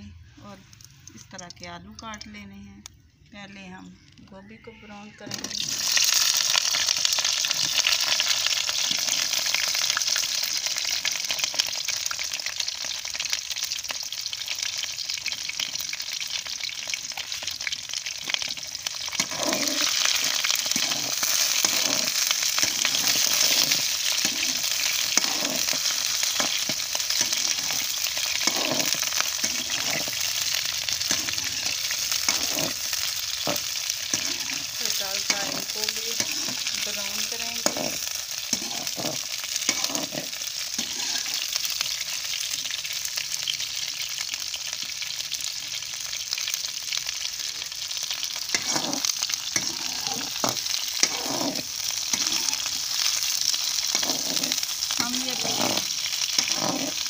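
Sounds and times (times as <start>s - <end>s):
vegetables sizzling in hot oil: 5.2s - 57.0s
metal spatula scraping pan: 18.2s - 41.6s, 48.4s - 57.0s.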